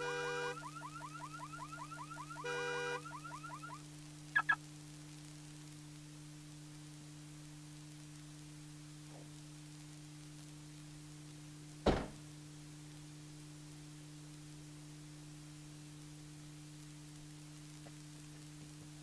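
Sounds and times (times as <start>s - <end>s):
car trunk lid slamming: 11.8s - 12.2s.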